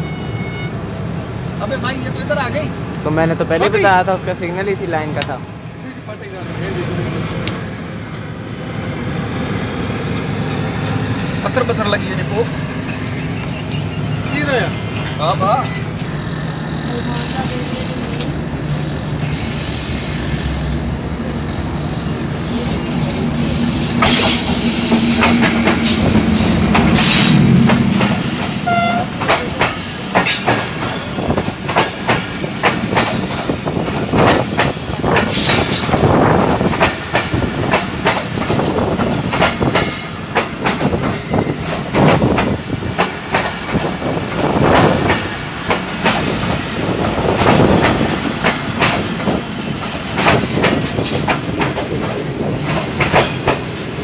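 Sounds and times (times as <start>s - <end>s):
diesel locomotive engine hum: 0.0s - 54.0s
train wheels clacking over rail joints: 23.4s - 54.0s.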